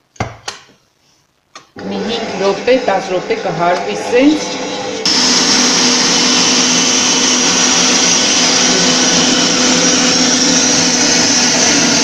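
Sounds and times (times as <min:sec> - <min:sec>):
stand mixer whisking: 0:03.7 - 0:12.0.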